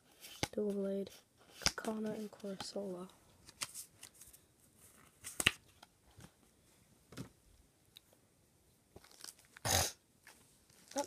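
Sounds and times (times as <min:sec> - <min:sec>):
wrapper rustle: 0:09.0 - 0:09.6, 0:10.7 - 0:11.0.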